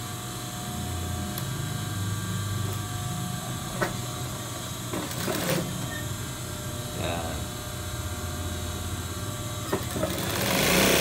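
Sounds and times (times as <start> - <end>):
sewing machine motor hum: 1.2 - 6.3, 9.6 - 11.0.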